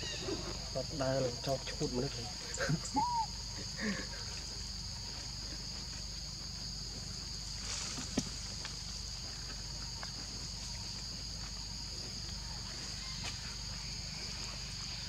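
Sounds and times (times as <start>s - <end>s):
high-pitched insect drone: 0.0s - 15.0s.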